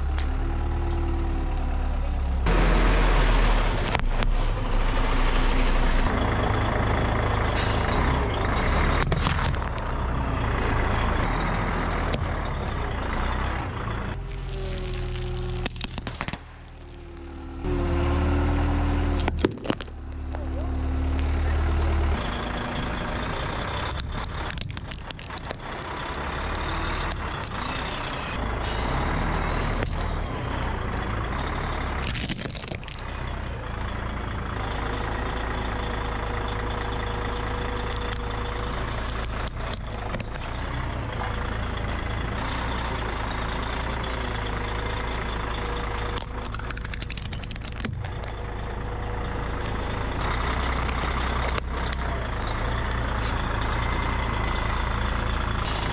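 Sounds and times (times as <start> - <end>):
vehicle engine rumbling: 0.0 - 55.9
plastic and shell cracking: 14.2 - 17.7, 19.0 - 20.4, 23.8 - 27.6, 32.0 - 33.3, 37.8 - 41.0, 46.1 - 48.8
tyres rolling: 35.9 - 45.0.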